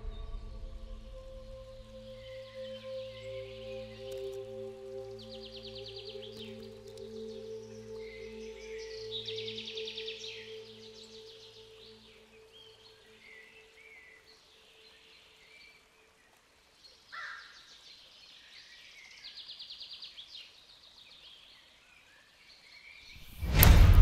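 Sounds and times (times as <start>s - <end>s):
music: 0.0s - 15.4s, 23.2s - 24.0s
birds chirping and trilling: 0.0s - 23.8s
sudden loud hit: 23.3s - 24.0s.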